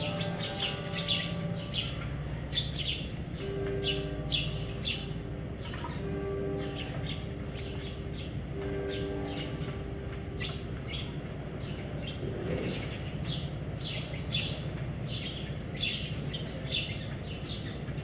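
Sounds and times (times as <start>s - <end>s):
sparrows chirping: 0.0s - 18.0s.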